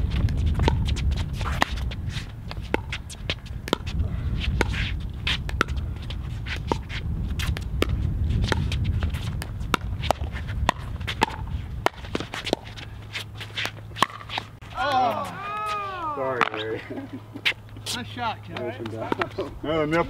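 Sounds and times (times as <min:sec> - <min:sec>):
steady low rumble: 0:00.0 - 0:14.8
shoes scuffing on hard court: 0:00.0 - 0:16.7.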